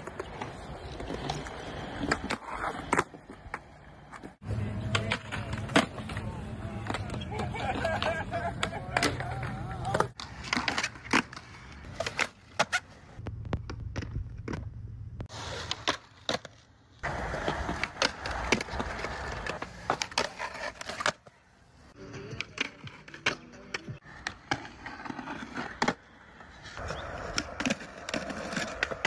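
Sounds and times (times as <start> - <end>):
skateboard clacking: 0.0 - 12.9, 15.6 - 21.3, 26.8 - 29.0
skateboard wheels rolling on concrete: 0.0 - 29.0.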